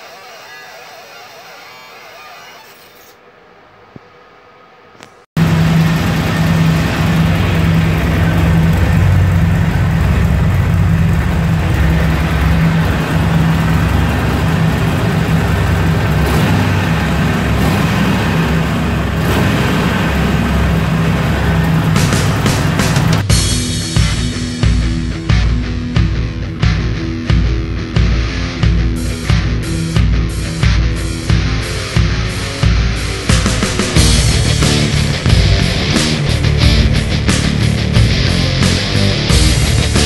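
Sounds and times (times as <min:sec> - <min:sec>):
motorcycle engine idling: 0:05.4 - 0:23.8.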